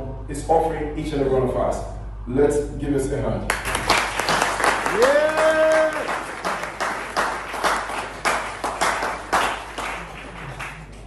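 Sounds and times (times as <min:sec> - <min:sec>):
audience applauding: 0:03.5 - 0:11.0
person cheering: 0:04.8 - 0:06.6.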